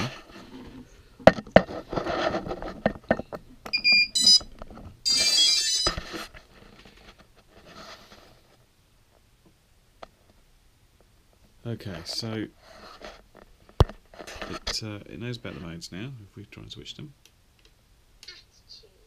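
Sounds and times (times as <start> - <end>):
high electronic beeps: 3.7 - 6.0
pitched electronic tones: 3.7 - 6.0.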